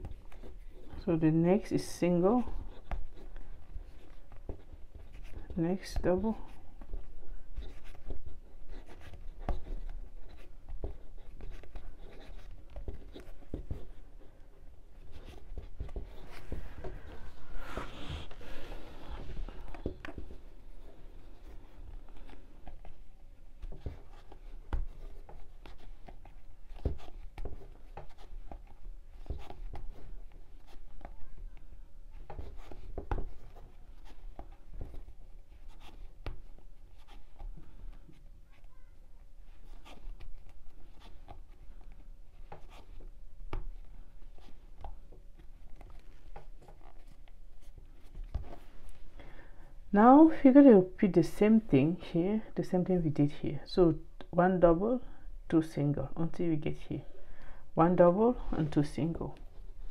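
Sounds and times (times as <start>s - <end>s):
yarn rubbing: 0.0s - 31.4s.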